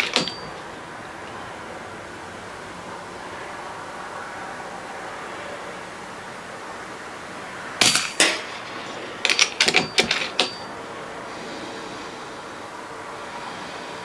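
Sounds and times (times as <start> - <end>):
sharp metallic clicks: 0.0 - 0.6, 9.2 - 10.7.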